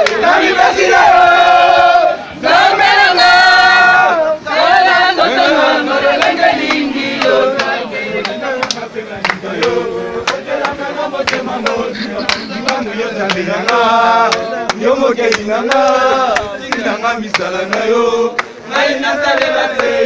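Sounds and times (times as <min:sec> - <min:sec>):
sharp claps: 0:00.0 - 0:00.3, 0:06.1 - 0:20.0
crowd singing in chorus: 0:00.0 - 0:20.0.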